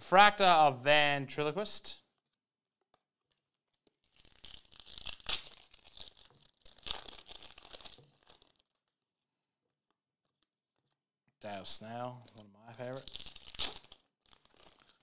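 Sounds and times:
foil wrapper crinkling and tearing: 3.3 - 9.0, 12.1 - 15.0.

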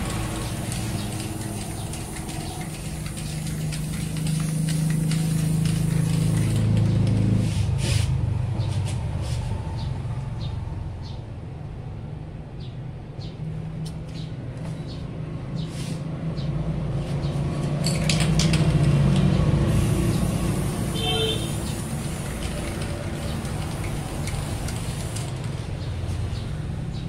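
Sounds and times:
spray paint can hissing: 0.0 - 8.2, 19.0 - 26.4.

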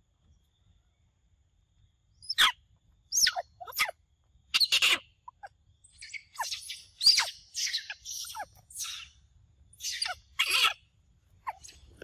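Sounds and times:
birds calling: 4.6 - 9.2, 9.8 - 12.0
birds chattering: 4.6 - 9.2, 9.8 - 10.9.

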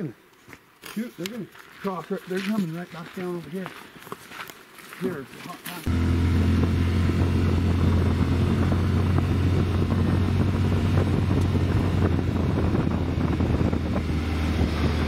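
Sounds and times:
vehicle engine droning: 5.9 - 15.0.

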